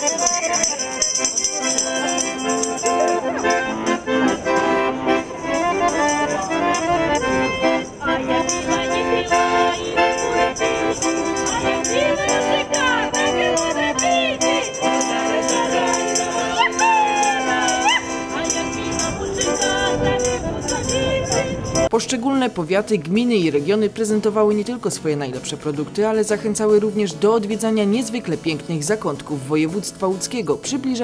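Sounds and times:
tambourines jingling: 0.0s - 21.9s
accordion folk music: 0.0s - 31.0s
women singing: 8.1s - 21.9s.

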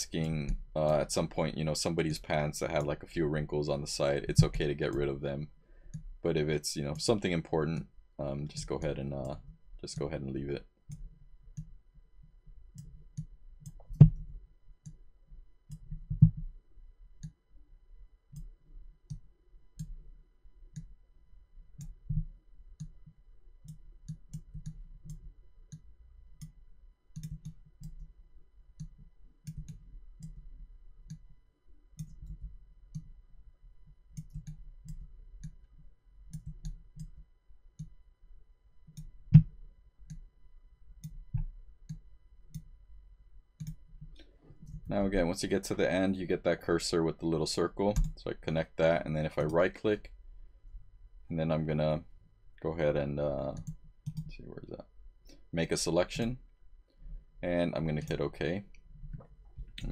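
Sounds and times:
computer mouse clicking: 18.3s - 20.0s, 21.7s - 28.1s, 28.8s - 31.2s, 32.0s - 33.2s, 34.1s - 37.2s, 38.9s - 40.3s, 41.0s - 42.7s, 43.6s - 44.9s, 53.5s - 54.3s.

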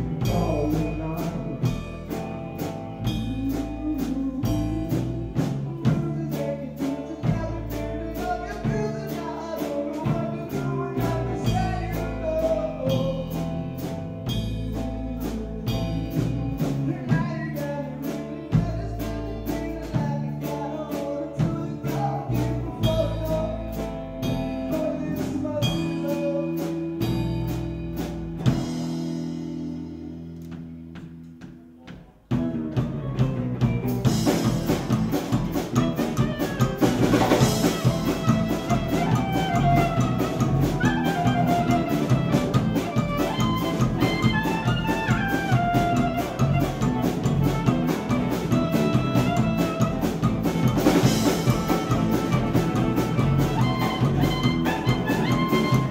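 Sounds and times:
live band playing: 0.0s - 55.9s
loud drums: 0.0s - 55.9s
clarinet melody: 35.7s - 55.9s.

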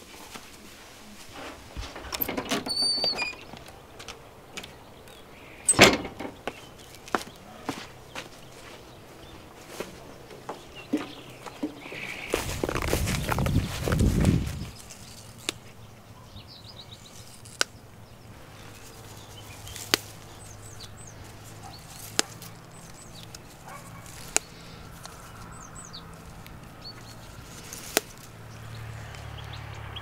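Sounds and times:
faint birds chirping: 0.0s - 30.0s
dandelion stems snapping: 17.2s - 17.8s, 18.6s - 28.4s.

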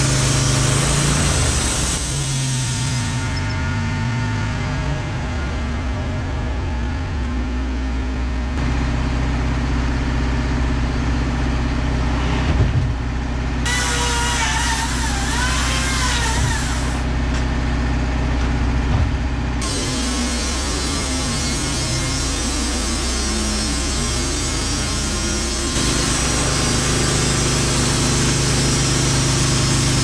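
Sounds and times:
sawmill engine running: 0.0s - 30.0s
hiss with whistling whine: 19.6s - 30.0s.

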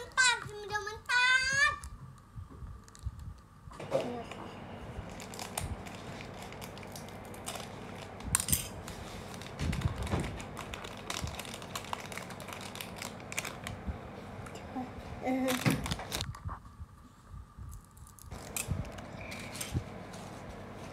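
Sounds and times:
plastic wrapper crinkling: 5.0s - 13.8s, 15.3s - 16.4s.

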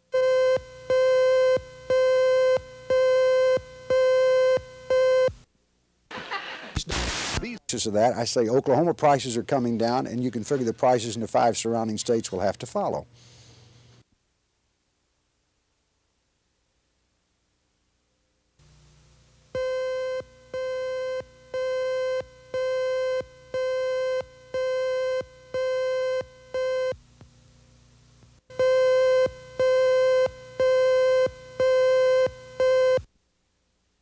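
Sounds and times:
buzzy beep tone: 28.5s - 33.0s.

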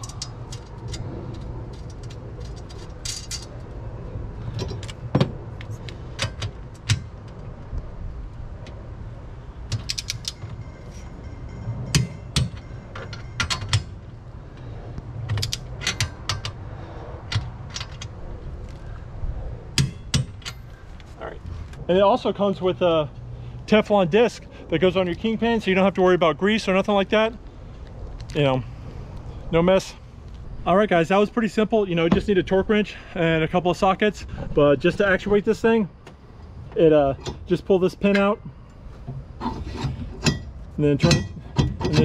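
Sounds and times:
steady low hum: 0.0s - 42.0s
metallic clinks: 9.7s - 14.1s.

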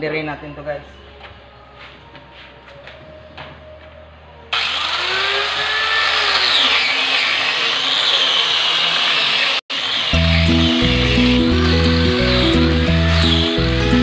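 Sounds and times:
electric sander on wood: 4.5s - 14.0s.

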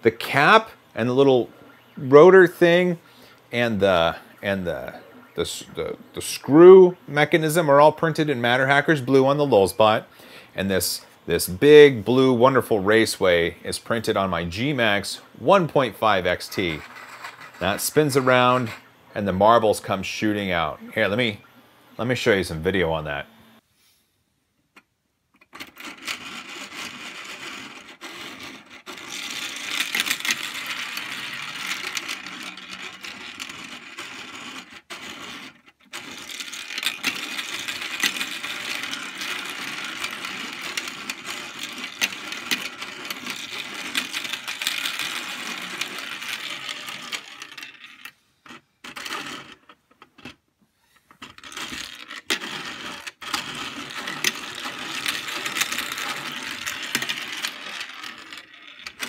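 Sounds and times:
metal marbles rattling down tracks: 16.0s - 18.8s, 25.8s - 48.1s, 51.2s - 59.0s.

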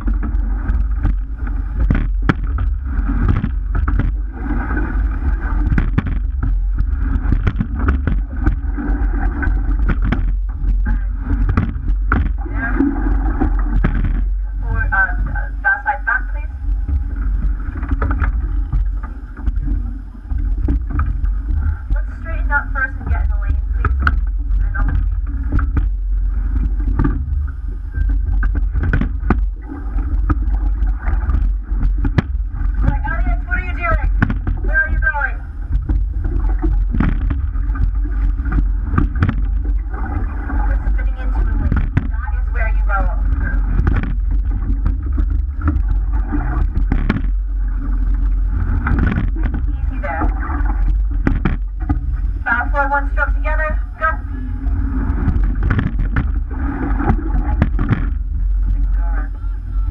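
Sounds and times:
oars and rigging knocking: 0.0s - 59.9s
water rushing along boat hull: 0.0s - 59.9s
wind rumble on microphone: 0.0s - 59.9s.

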